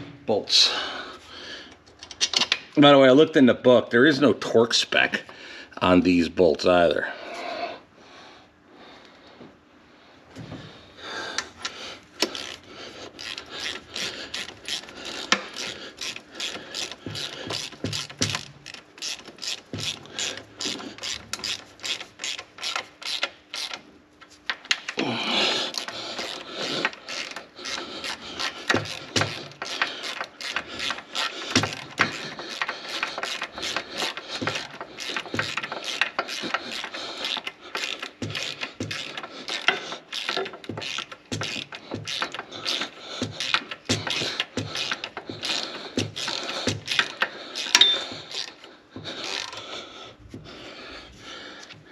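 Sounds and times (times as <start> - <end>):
ratchet wrench clicking: 12.2 - 23.8, 25.7 - 49.6.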